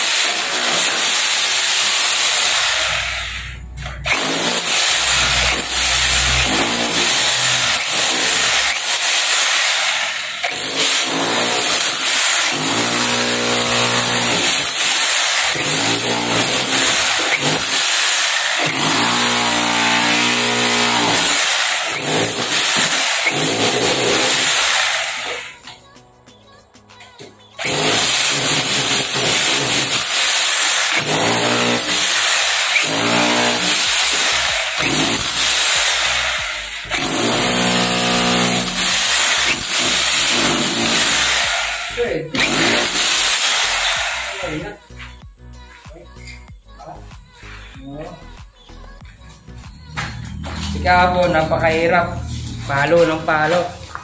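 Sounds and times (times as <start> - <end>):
rotary hammer chipping concrete: 0.0 - 3.0, 4.0 - 25.4, 27.6 - 44.6.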